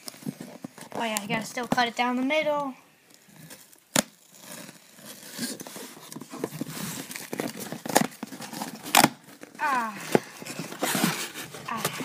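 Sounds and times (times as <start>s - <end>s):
cardboard tearing and rustling: 3.2s - 12.0s
cardboard snapping: 7.2s - 9.4s.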